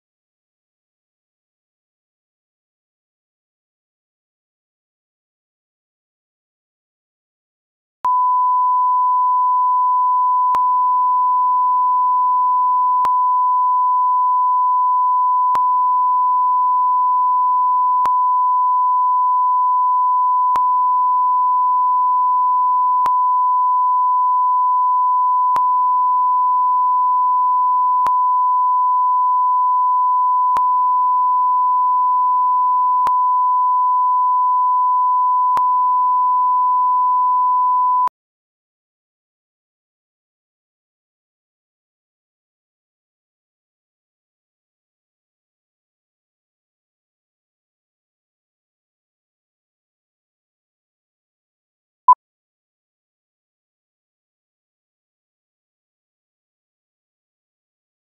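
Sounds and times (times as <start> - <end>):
sine-wave line-up tone: 8.1 - 38.1.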